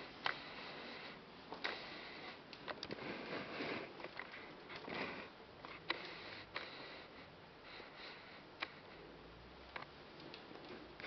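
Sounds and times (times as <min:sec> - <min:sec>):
faint clicks: 0:09.7 - 0:10.8.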